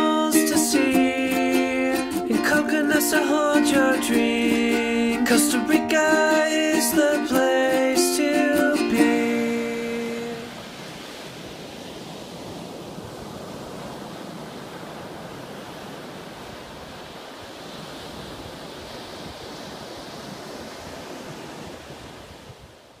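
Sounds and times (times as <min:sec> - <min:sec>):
small waves washing onto beach: 0:09.0 - 0:23.0.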